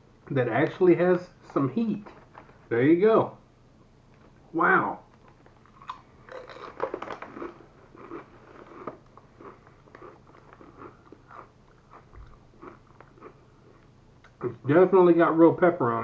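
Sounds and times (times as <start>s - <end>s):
chip crunching: 5.1s - 13.9s.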